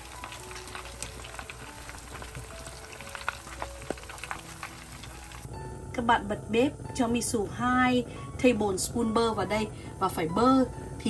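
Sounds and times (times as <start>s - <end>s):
shrimp sizzling in hot oil: 0.0s - 5.5s.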